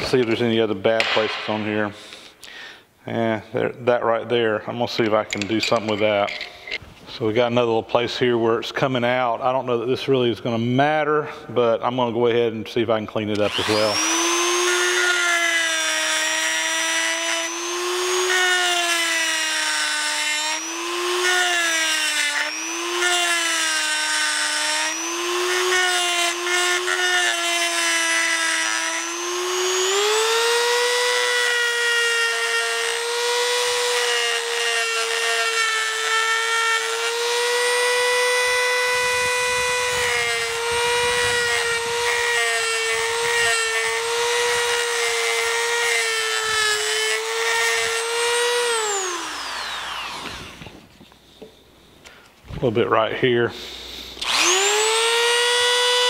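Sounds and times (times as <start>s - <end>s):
rotary tool motor whine: 13.4s - 50.8s, 54.2s - 56.0s.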